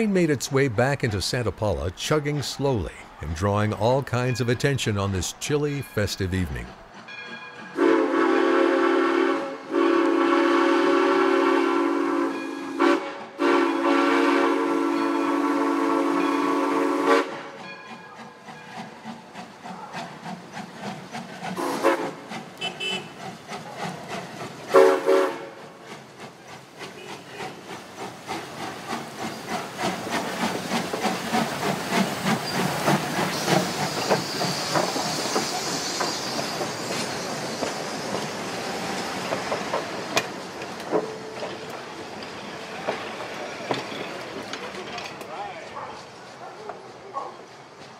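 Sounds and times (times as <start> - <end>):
train clattering rhythmically: 0.0 - 47.9
steam locomotive whistle: 7.1 - 17.6, 21.6 - 23.2, 24.7 - 25.6.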